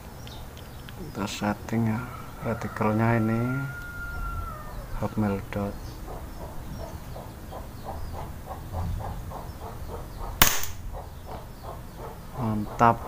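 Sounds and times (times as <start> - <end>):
faint chirping: 0.0 - 13.0
rifle shot: 10.4 - 10.9.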